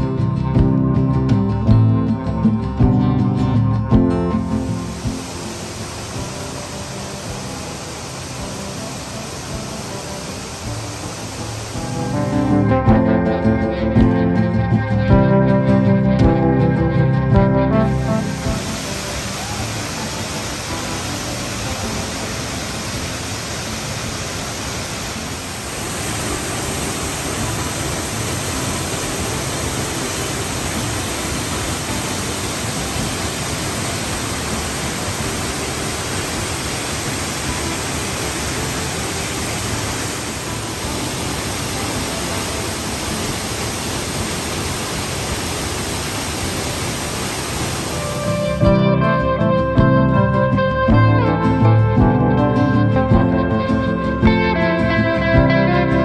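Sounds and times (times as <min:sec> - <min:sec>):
waterfall rushing: 0:04.1 - 0:14.6, 0:17.6 - 0:49.2.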